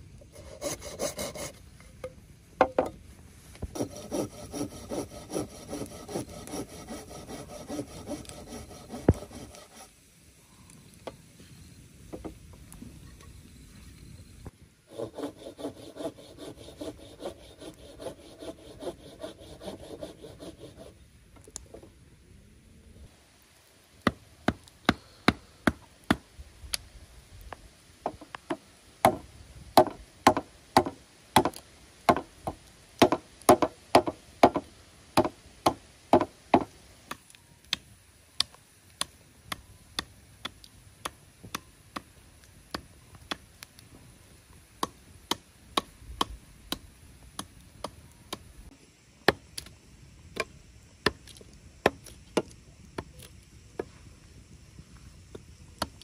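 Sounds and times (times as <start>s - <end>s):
hand tool striking wood: 33.0s - 34.6s, 35.2s - 36.7s.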